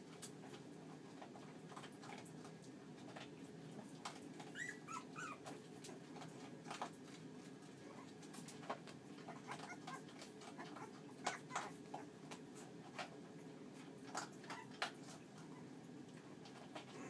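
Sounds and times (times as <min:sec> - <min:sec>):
low background hum: 0:00.0 - 0:17.0
puppies squeaking: 0:04.4 - 0:05.5, 0:09.3 - 0:11.8, 0:14.4 - 0:14.8.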